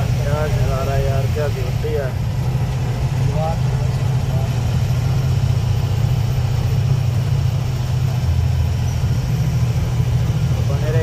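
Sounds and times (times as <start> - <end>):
motorcycle engine running: 0.0 - 11.0
road noise: 0.0 - 11.0.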